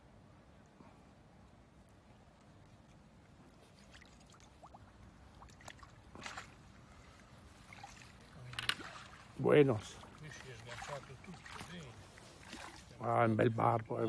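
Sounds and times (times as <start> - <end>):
river water sloshing and splashing: 1.7 - 14.0
sharp splash or knock: 5.4 - 6.6.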